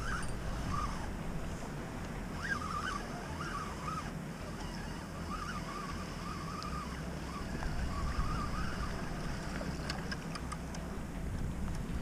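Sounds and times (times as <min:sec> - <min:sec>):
faint wavering high tone: 0:00.0 - 0:01.2
wind rumble on microphone: 0:00.0 - 0:12.0.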